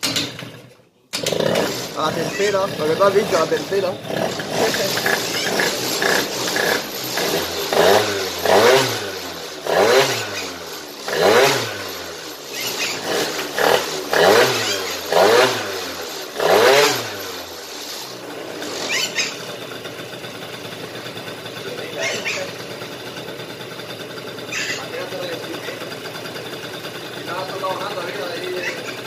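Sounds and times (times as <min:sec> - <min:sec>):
scooter engine revving: 0:00.0 - 0:29.0.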